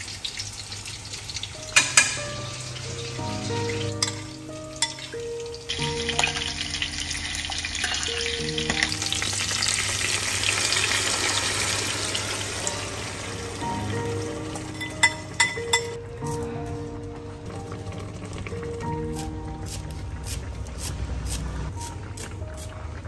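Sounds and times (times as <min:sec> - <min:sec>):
fish sizzling in a pan: 0:00.0 - 0:15.4
sauce poured into hot pan: 0:00.1 - 0:14.0
simple background music tune: 0:01.4 - 0:09.8, 0:11.7 - 0:21.0.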